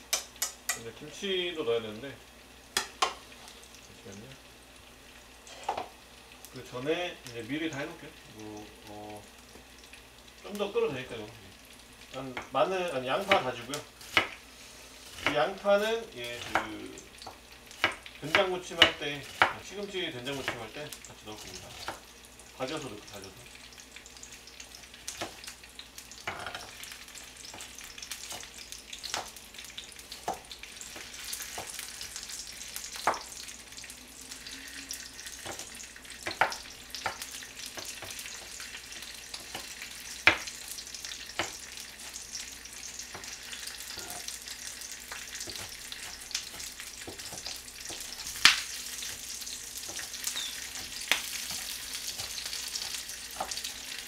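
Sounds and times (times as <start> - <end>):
pot boiling hiss: 0.0 - 54.0
knife chopping on plastic board: 45.4 - 48.1.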